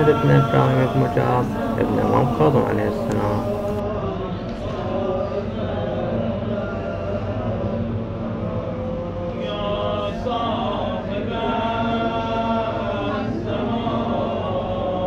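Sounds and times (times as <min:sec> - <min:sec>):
group of voices chanting: 0:00.0 - 0:03.8.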